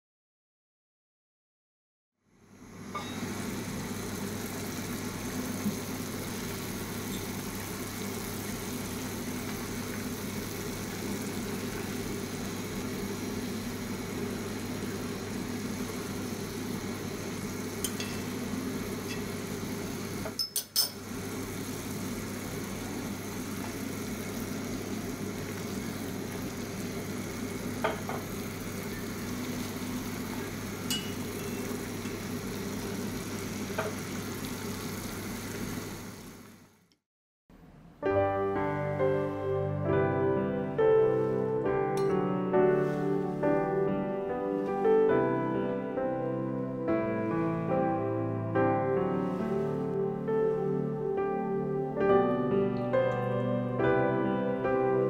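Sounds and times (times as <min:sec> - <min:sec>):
cooking hum and hiss on stove: 0:02.2 - 0:36.9, 0:41.0 - 0:45.6, 0:49.2 - 0:51.0
utensils clinking on cookware: 0:03.0 - 0:03.3, 0:17.8 - 0:18.3, 0:19.0 - 0:19.3, 0:20.2 - 0:21.0, 0:30.8 - 0:31.6, 0:42.0 - 0:42.2.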